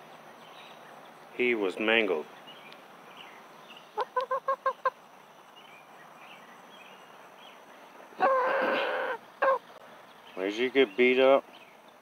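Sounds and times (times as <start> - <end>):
rooster clucking and squawking: 4.0 - 5.0, 8.2 - 9.8.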